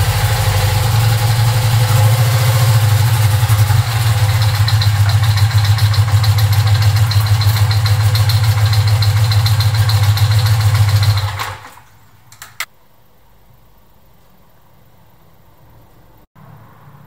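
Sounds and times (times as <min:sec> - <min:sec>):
motorcycle engine idling: 0:00.0 - 0:12.2.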